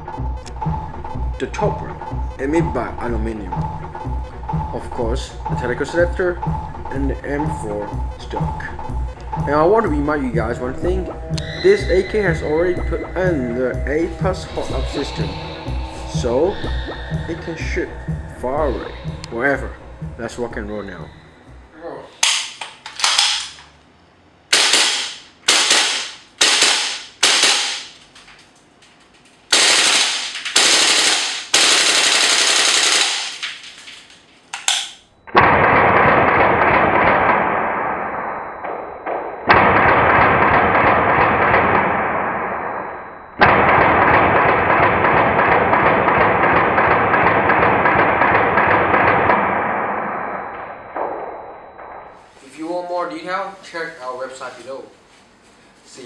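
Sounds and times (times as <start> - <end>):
airsoft rifle automatic fire: 24.5 - 28.0, 29.5 - 34.0, 34.6 - 50.4.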